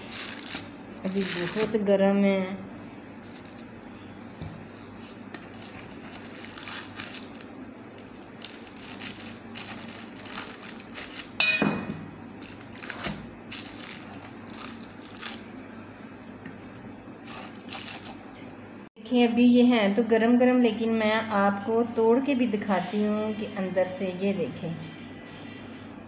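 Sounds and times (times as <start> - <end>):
baking paper crinkling: 0.0 - 1.9, 3.2 - 3.7, 4.8 - 11.4, 12.4 - 15.5, 17.2 - 18.2.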